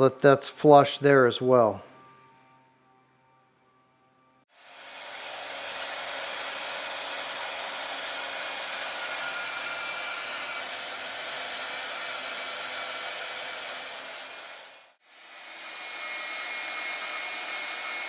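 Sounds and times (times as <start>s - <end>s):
band saw cutting metal: 4.6s - 18.0s.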